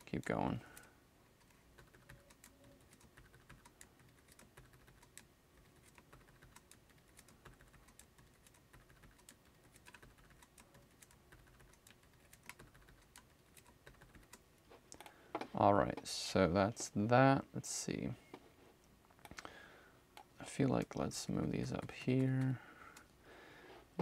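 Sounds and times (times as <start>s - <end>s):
keyboard keys clicking: 0.8s - 15.1s.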